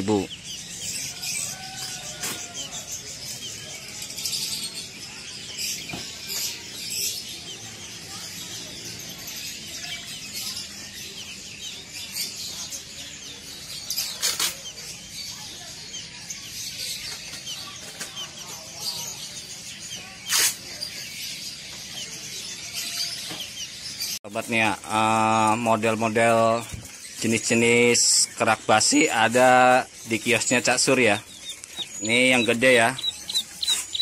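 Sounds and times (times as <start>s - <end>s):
songbirds chirping: 0.0s - 34.0s
wing flutters and knocks: 13.9s - 14.6s.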